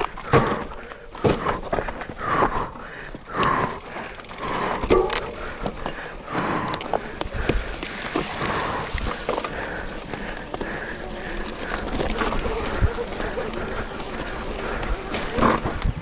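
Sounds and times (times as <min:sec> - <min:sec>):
bike knocking and rattling: 0:00.0 - 0:16.0
bike tyres rolling on dirt and rock: 0:00.0 - 0:16.0.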